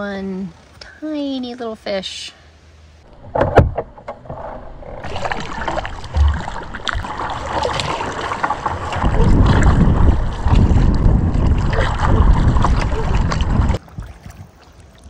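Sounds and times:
wind buffeting microphone: 3.1 - 15.0
paddle splashes and drips: 5.0 - 15.0.

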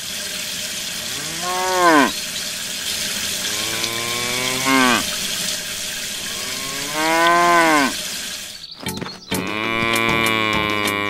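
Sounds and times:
water spraying from shower head: 0.0 - 10.1
cattle mooing: 1.1 - 2.2, 3.4 - 8.0, 9.4 - 11.0.

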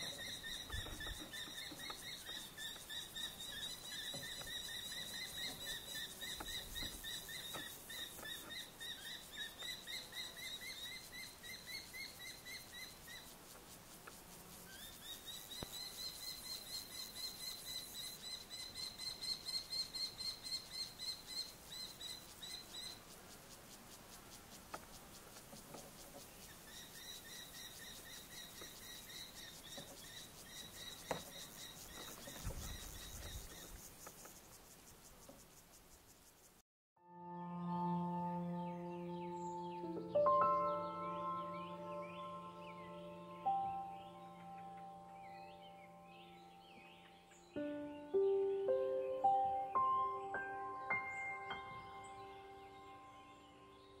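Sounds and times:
kestrel calling: 0.0 - 13.4, 26.4 - 34.3, 38.7 - 53.6.

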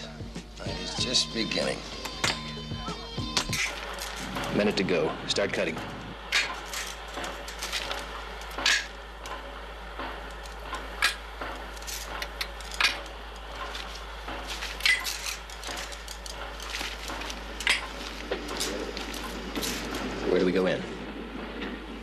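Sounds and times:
wire clinking: 0.9 - 20.7.

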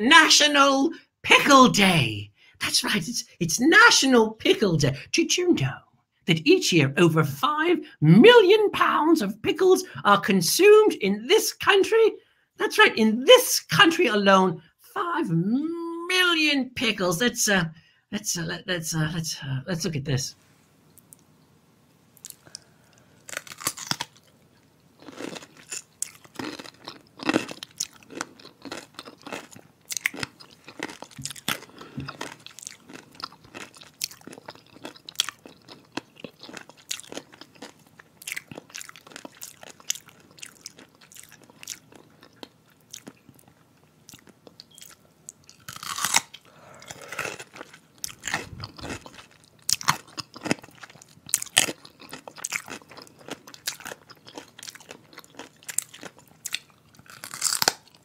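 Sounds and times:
pickle crunching: 22.2 - 24.4, 25.0 - 58.0.

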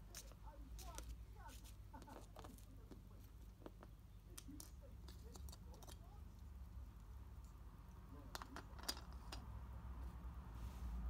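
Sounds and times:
plastic toy pieces clicking on wood: 4.4 - 6.1, 8.3 - 9.4.

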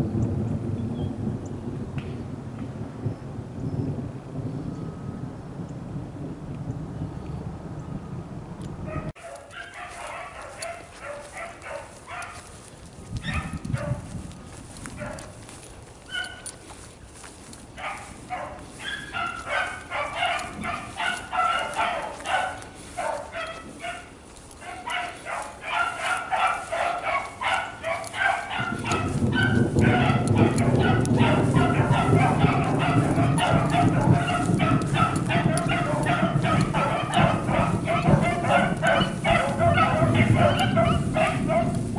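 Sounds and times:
beagles baying: 8.8 - 41.9.

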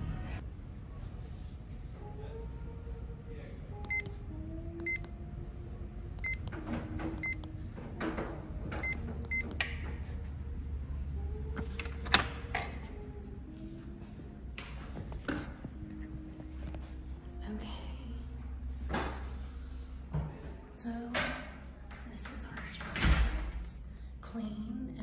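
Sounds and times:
keypad beeps: 3.8 - 4.2, 4.8 - 5.1, 6.2 - 6.6, 7.2 - 7.6, 8.8 - 9.6.

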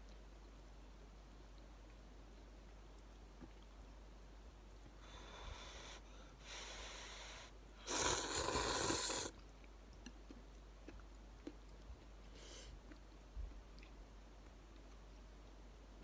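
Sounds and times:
person slurping noodles: 7.9 - 9.3.

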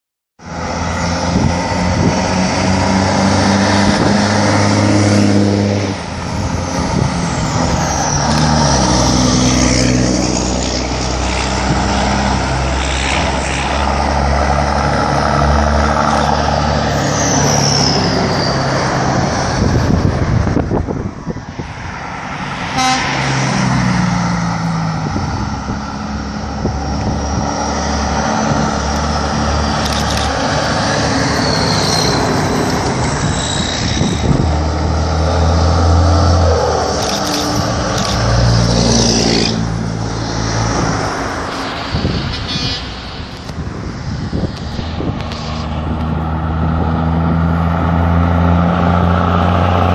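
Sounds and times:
truck horn toots: 22.8 - 23.3
diesel truck engines running: 23.6 - 49.9.

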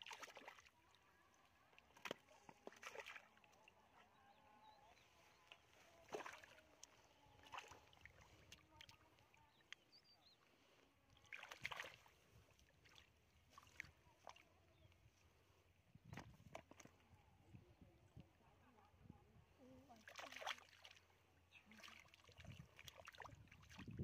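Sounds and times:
hands splashing in muddy water: 0.0 - 0.8, 1.7 - 3.6, 5.0 - 9.9, 11.2 - 14.4, 21.8 - 23.9.

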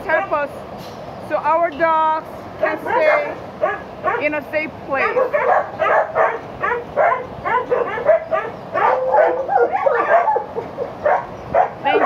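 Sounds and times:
dogs barking and yipping: 0.0 - 0.5, 2.6 - 4.4, 5.0 - 12.0.

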